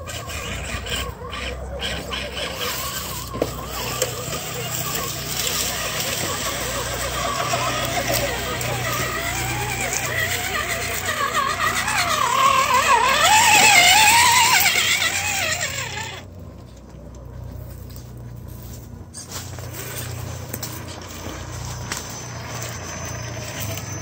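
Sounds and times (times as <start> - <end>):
electric motor and gearbox whine: 0.0 - 24.0.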